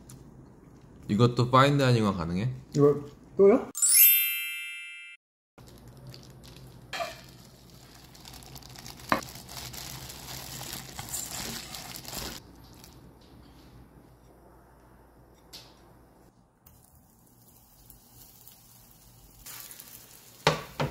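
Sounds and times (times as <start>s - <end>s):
bright chime: 3.8s - 5.2s
plastic glove crinkling: 5.6s - 13.1s, 17.4s - 20.5s.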